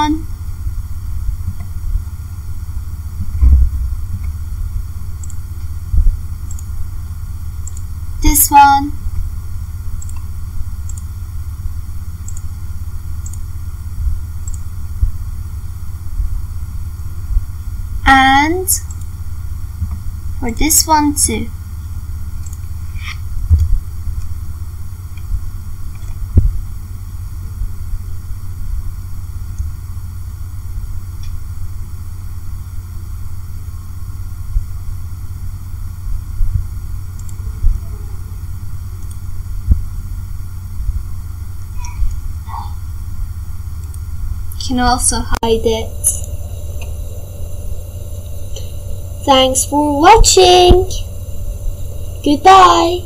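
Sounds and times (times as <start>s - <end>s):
low rumble and hiss: 0.0s - 53.0s
mouse clicks: 5.2s - 5.4s, 6.5s - 6.7s, 10.0s - 10.3s, 10.9s - 11.1s, 12.2s - 12.5s, 13.2s - 13.4s, 14.4s - 14.6s.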